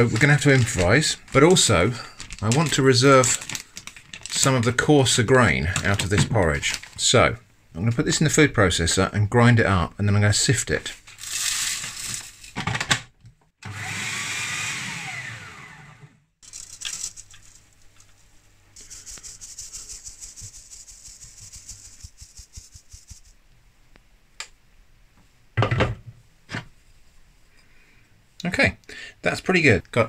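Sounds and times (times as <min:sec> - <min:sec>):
food processor grinding oats: 0:13.6 - 0:16.1
oats shaken through mesh sieve: 0:16.4 - 0:23.4.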